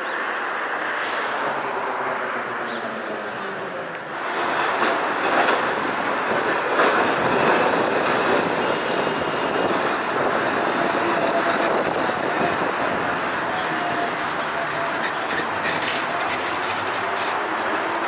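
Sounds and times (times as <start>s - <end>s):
streetcar wheels rumbling on rails: 0.2s - 18.0s
faint wheel squeal: 9.1s - 10.6s.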